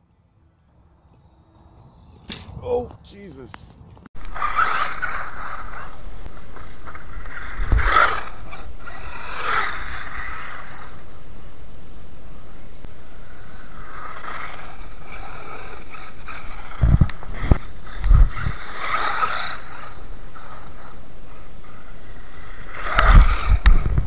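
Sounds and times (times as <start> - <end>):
wind on microphone: 2.0 - 10.6, 13.6 - 20.7, 21.6 - 24.0
toy car motor whirring: 4.2 - 11.1, 13.2 - 24.0.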